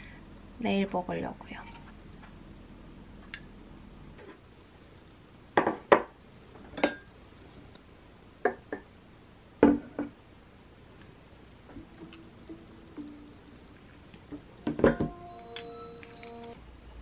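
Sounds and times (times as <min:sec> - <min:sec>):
tableware knocking and clinking: 0:14.7 - 0:16.4.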